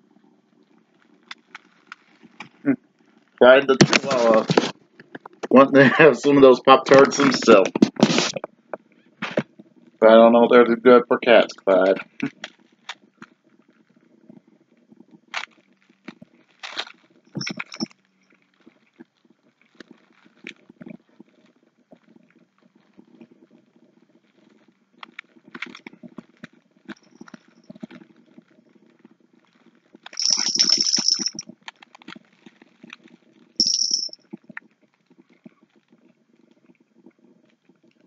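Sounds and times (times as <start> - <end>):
faint steady hum: 0.0 - 38.0
foil wrapper crinkling: 1.0 - 2.6, 3.2 - 5.5, 15.4 - 17.7.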